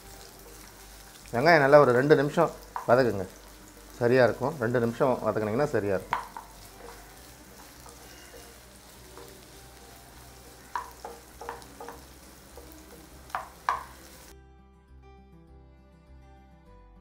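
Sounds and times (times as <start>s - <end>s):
onions sizzling in hot oil: 0.0s - 14.3s
soft background music: 0.0s - 17.0s
wooden spatula scraping a pan: 6.1s - 12.1s.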